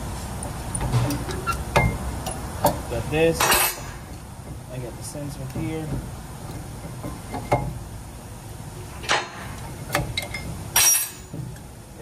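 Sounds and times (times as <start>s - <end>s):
metal clinks and knocks: 9.0s - 11.6s.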